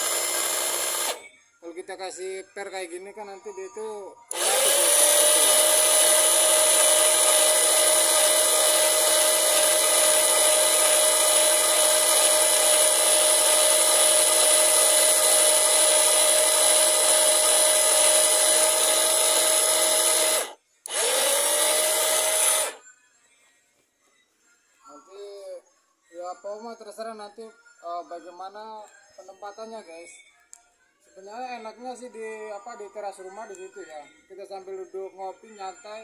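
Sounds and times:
electric winch motor whine: 0.0s - 1.3s, 4.3s - 22.8s.

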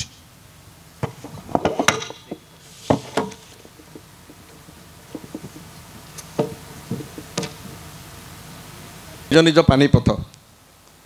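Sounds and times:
microphone handling knocks and clicks: 1.0s - 7.8s.

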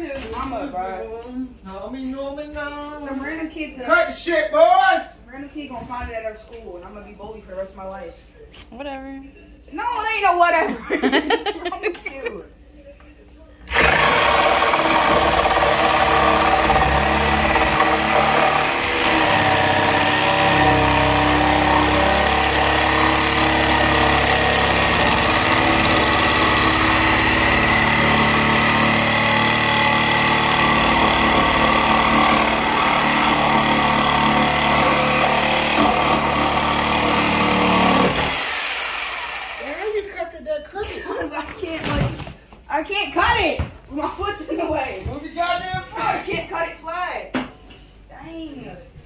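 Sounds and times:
power saw cutting wood: 13.7s - 39.9s.

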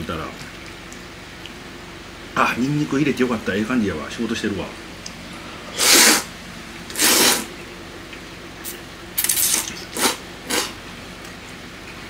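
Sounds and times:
person slurping noodles: 5.7s - 6.3s, 6.9s - 7.5s, 9.2s - 10.8s.

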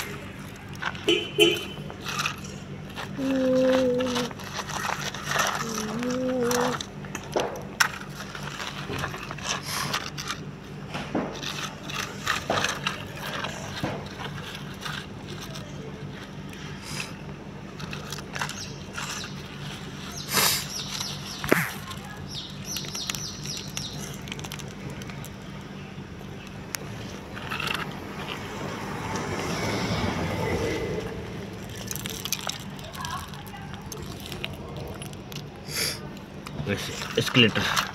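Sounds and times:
gravel scraped by hand: 0.0s - 10.5s, 11.3s - 25.5s, 26.6s - 37.9s
pebbles dropping onto plastic: 0.0s - 16.4s, 17.7s - 25.7s, 31.5s - 35.6s, 36.5s - 37.9s
steady low hum: 0.0s - 37.9s.

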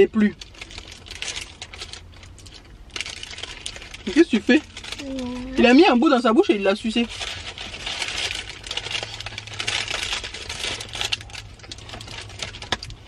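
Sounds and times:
paper wrapper rustling: 0.0s - 13.0s
chewing crackles: 8.4s - 13.0s.

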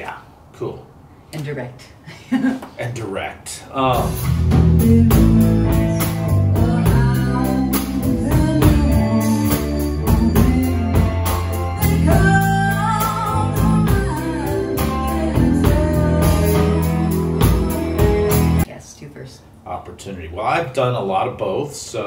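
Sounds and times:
bass guitar: 3.8s - 18.6s
drum kit beat: 3.8s - 18.6s
lead vocal singing: 3.9s - 18.6s
electric guitars: 4.1s - 18.6s.

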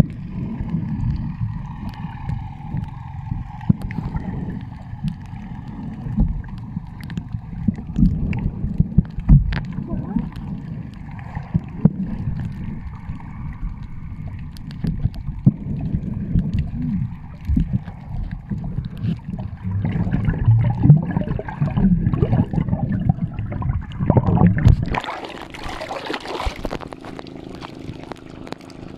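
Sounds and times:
underwater low rumble: 0.0s - 28.9s
clicks from swimmer's movement: 1.7s - 12.7s, 13.6s - 15.6s, 24.2s - 28.9s.

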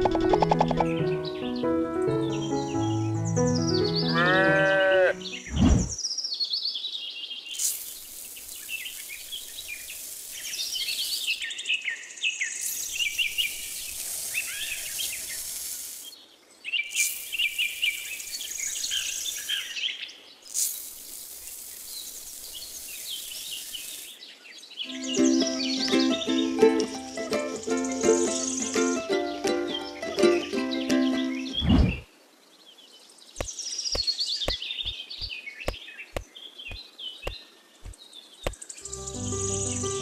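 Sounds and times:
small birds chirping and singing: 0.0s - 40.0s
pitched swoop: 5.5s - 6.0s, 31.6s - 32.0s
steady high hiss: 7.5s - 11.6s, 12.5s - 16.2s, 16.9s - 24.2s.

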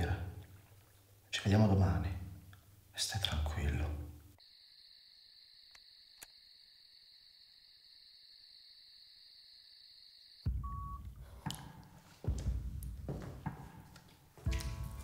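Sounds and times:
crickets trilling: 4.4s - 11.0s.

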